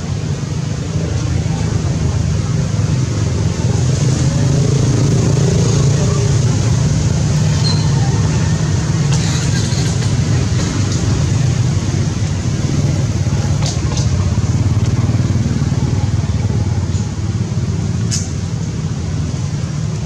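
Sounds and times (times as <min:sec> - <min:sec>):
high squeaks: 0:07.4 - 0:08.2.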